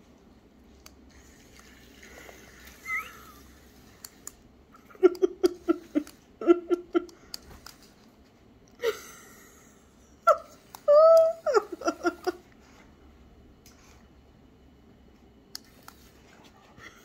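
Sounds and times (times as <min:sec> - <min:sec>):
person laughing: 0:04.7 - 0:07.2, 0:08.8 - 0:12.5.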